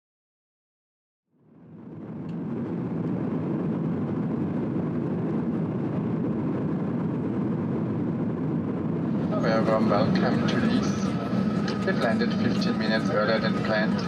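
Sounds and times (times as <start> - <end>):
airliner cabin rushing noise: 2.0 - 14.0.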